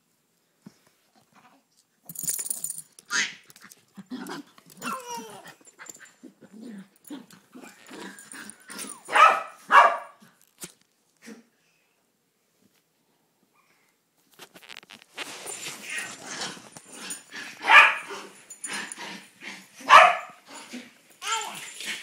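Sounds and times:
small dogs barking: 0:08.2 - 0:10.2, 0:17.5 - 0:18.3, 0:19.8 - 0:20.4.

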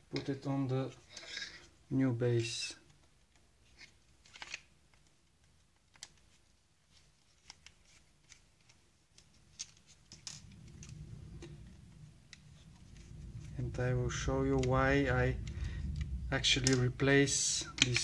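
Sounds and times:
low rumble of handling: 0:09.9 - 0:18.0
plastic parts clicking and knocking: 0:14.5 - 0:18.0.

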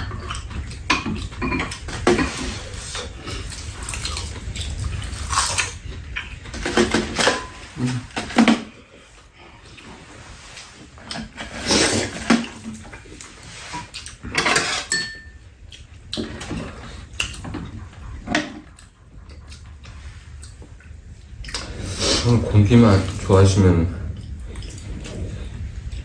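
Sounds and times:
utensils clinking on bowls: 0:00.0 - 0:03.1, 0:14.2 - 0:15.5
quiet eating sounds: 0:00.0 - 0:26.0.

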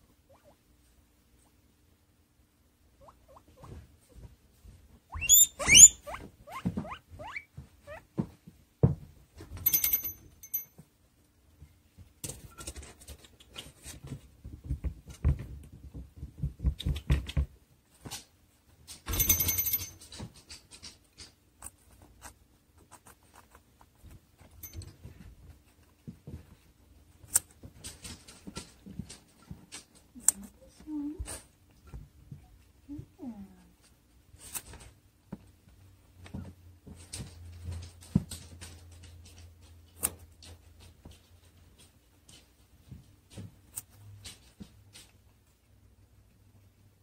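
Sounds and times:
guinea pig squeaking: 0:00.2 - 0:00.6, 0:03.0 - 0:04.2, 0:05.0 - 0:08.1.

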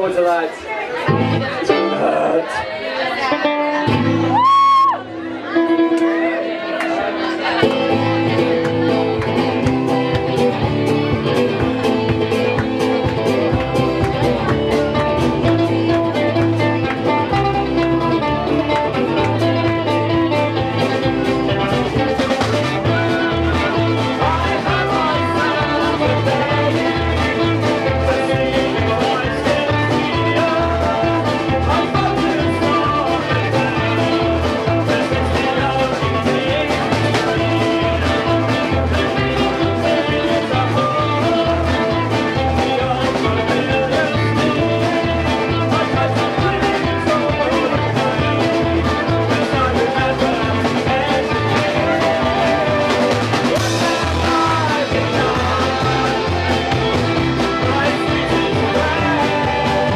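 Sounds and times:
guitars playing: 0:00.0 - 0:59.9
double bass: 0:01.0 - 0:01.8, 0:03.7 - 0:04.7, 0:07.4 - 0:59.9
man singing: 0:01.1 - 0:02.6, 0:14.4 - 0:59.9
bass beat: 0:07.5 - 0:59.9.

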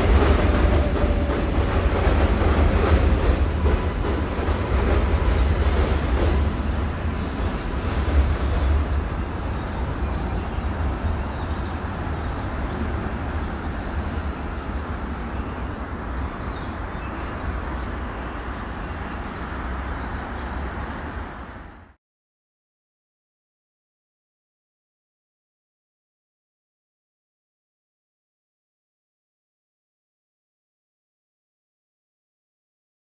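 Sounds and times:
elevated train rumbling: 0:00.0 - 0:22.0
street traffic: 0:00.0 - 0:22.0.

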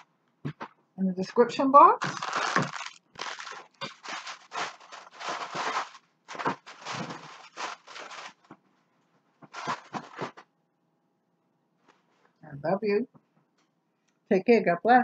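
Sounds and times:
objects rustling and scraping: 0:02.0 - 0:10.5.

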